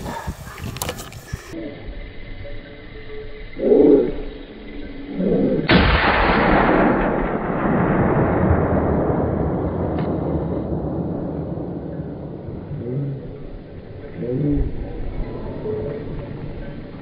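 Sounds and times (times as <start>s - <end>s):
hunting gunshot: 5.7s - 12.5s.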